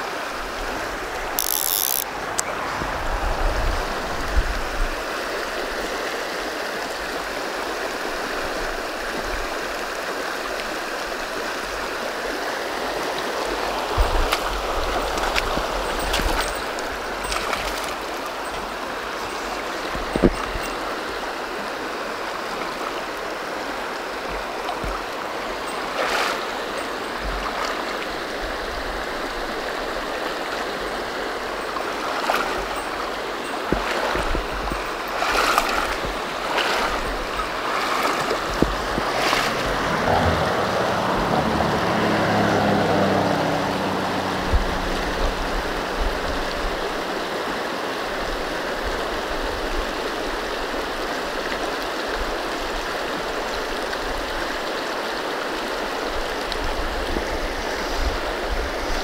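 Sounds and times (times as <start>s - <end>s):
water rushing through metal culverts: 0.0s - 59.0s
low hum: 38.6s - 46.6s.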